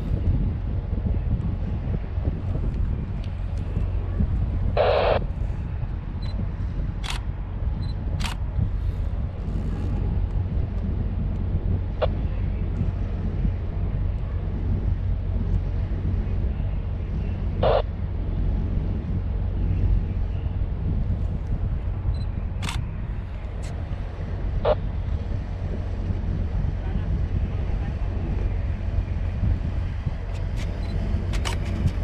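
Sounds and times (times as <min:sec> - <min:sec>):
ship low rumble: 0:00.0 - 0:32.0
sharp clicks: 0:30.4 - 0:32.0.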